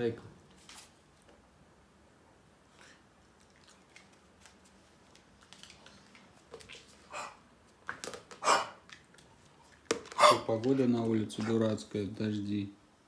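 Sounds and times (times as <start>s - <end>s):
puppy hacking coughs: 8.4s - 8.8s, 10.2s - 10.5s.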